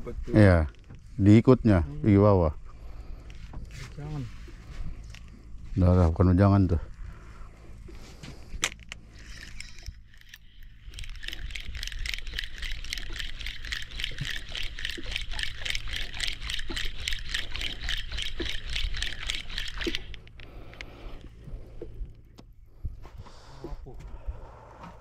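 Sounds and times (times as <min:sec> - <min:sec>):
fishing reel rotor ticking: 0:08.7 - 0:21.5.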